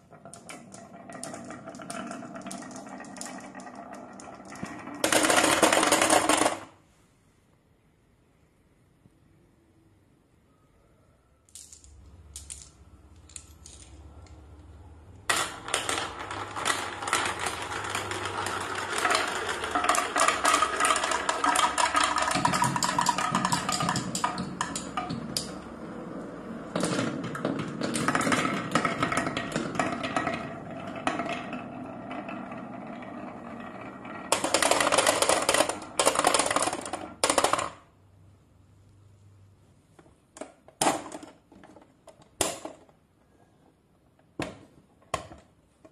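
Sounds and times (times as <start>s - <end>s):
marbles clattering down wooden tracks: 0.0s - 6.8s, 15.2s - 37.9s.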